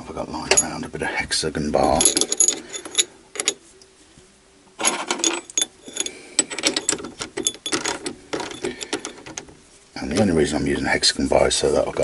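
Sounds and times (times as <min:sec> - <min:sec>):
metal bar clinking and rattling: 0:01.8 - 0:03.6, 0:04.8 - 0:09.5.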